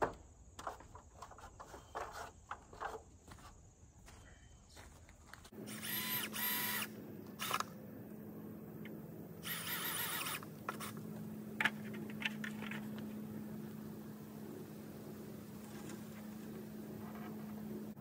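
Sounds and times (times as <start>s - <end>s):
steady hum: 5.5s - 18.0s
power drill whirring: 5.6s - 7.7s, 9.4s - 11.0s.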